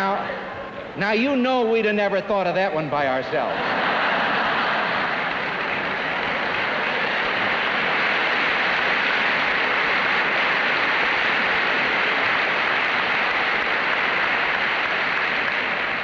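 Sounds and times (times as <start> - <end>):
large audience applauding: 3.6 - 16.0.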